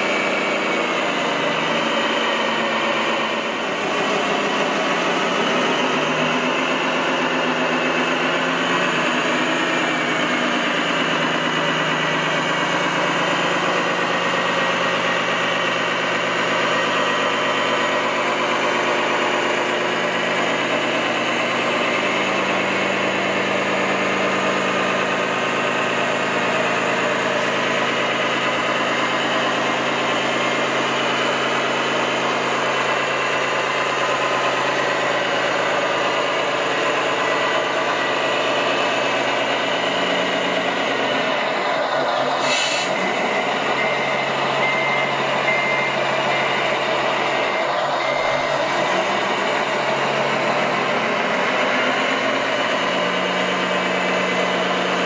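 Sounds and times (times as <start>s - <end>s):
simulated diesel truck engine idling: 0.0s - 55.0s.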